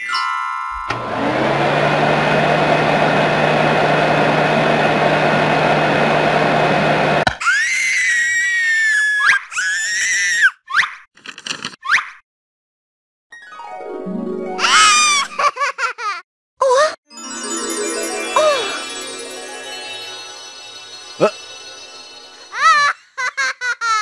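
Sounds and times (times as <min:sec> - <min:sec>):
vacuum cleaner running: 0:00.8 - 0:07.3, 0:17.2 - 0:22.9.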